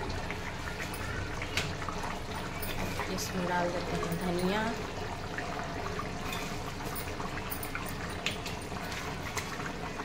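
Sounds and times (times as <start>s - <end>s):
gravy bubbling: 0.0s - 10.0s.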